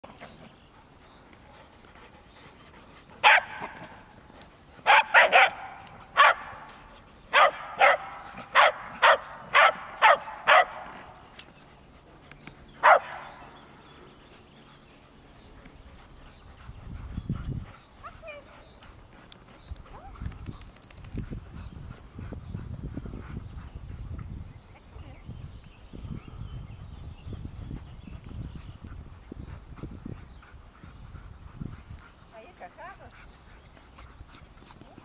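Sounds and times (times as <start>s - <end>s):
dog barking: 3.2s - 3.5s, 4.9s - 5.6s, 6.2s - 6.5s, 7.3s - 10.8s, 12.8s - 13.2s.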